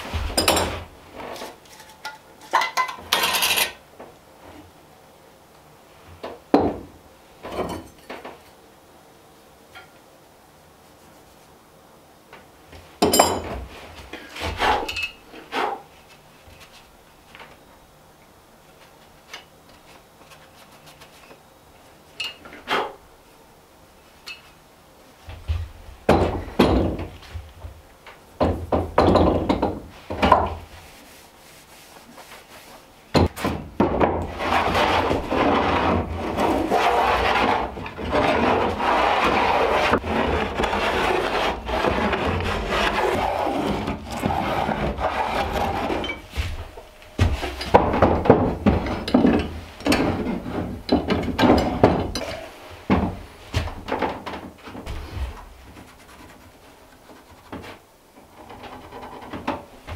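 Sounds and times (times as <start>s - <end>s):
hand plane shaving wood: 34.3s - 46.0s.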